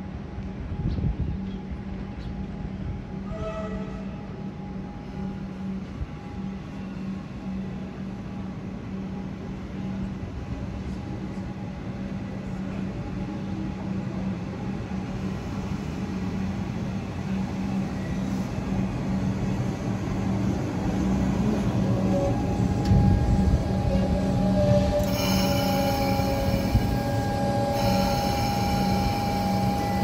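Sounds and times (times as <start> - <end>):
electric train arriving: 0.0 - 30.0
high whining tones: 21.8 - 30.0.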